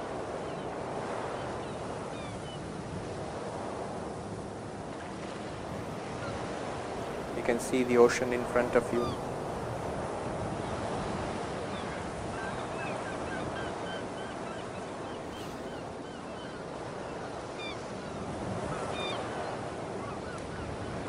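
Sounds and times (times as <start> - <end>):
ocean surf: 0.0 - 21.0
bird calls: 5.7 - 9.8, 11.7 - 19.3.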